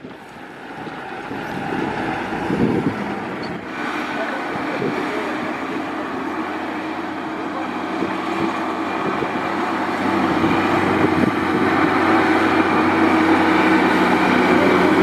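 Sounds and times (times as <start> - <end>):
truck diesel engine droning: 0.0 - 15.0.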